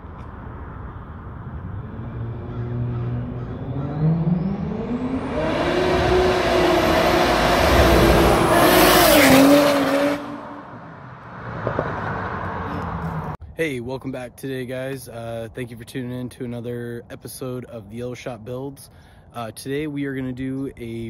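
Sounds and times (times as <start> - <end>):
car engine revving hard: 1.8 - 12.7.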